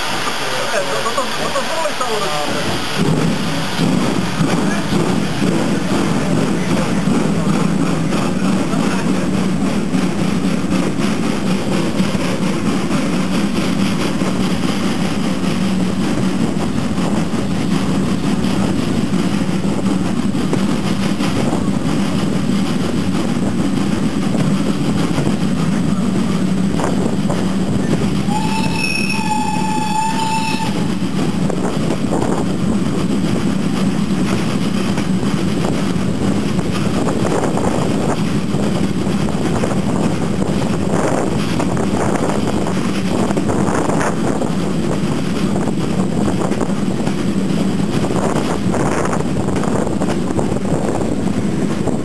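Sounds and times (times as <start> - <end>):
rushing air: 0.0 - 52.0
train wheels rumbling: 0.0 - 52.0
steam locomotive whistle: 28.2 - 31.0.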